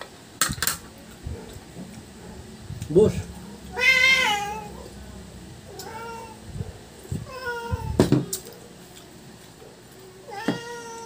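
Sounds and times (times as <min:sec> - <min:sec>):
cat meowing: 0:03.7 - 0:04.9, 0:05.7 - 0:06.6, 0:07.2 - 0:08.4, 0:10.2 - 0:11.0.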